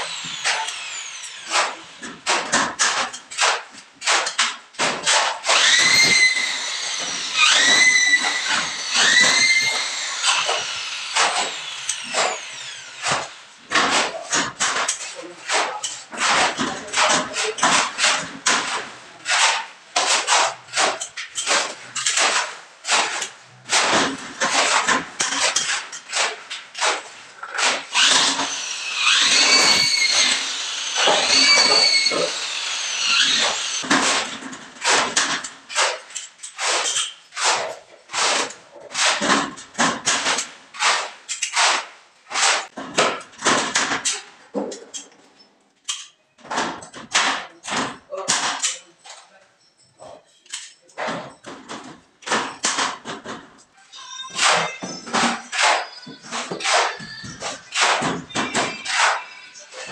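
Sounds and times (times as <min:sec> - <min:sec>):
power drill driving screws: 0:00.0 - 0:02.2, 0:05.5 - 0:13.4, 0:27.6 - 0:33.9
hand tool strokes on board: 0:27.6 - 0:34.2.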